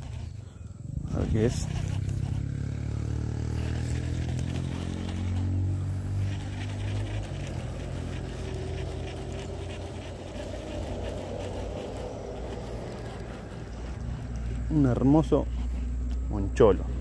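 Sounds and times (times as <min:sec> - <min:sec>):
fishing reel whirring: 0:00.0 - 0:17.0
light clicking and rustling: 0:03.6 - 0:17.0.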